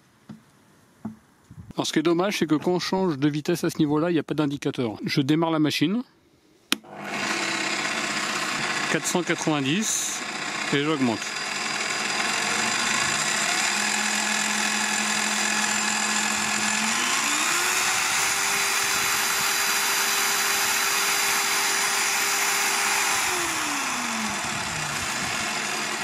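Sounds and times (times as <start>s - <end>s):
pillar drill motor whine: 6.8s - 26.0s.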